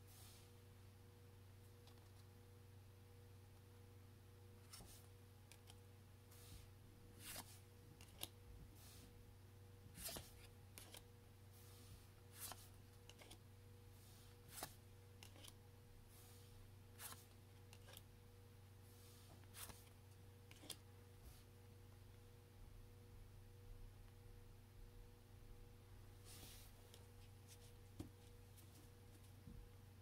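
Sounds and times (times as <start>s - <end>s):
low electrical hum: 0.0s - 30.0s.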